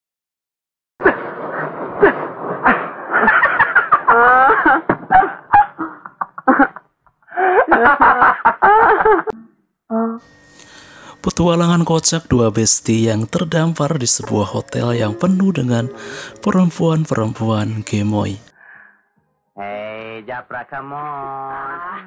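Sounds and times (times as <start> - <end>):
hearty laughter: 2.0 - 9.4.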